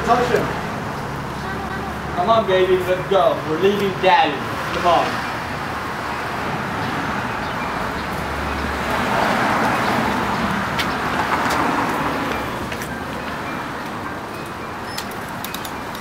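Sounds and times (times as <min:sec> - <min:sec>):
car passing: 0:00.0 - 0:14.9.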